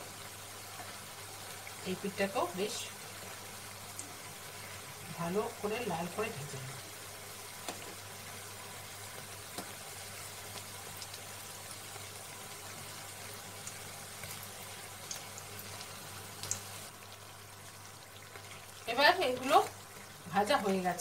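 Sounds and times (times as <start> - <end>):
fritters sizzling in hot oil: 0.0 - 21.0.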